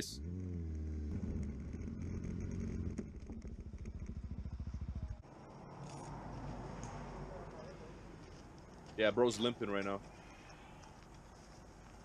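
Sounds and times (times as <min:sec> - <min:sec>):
motorcycle engine idling: 0:00.2 - 0:05.3.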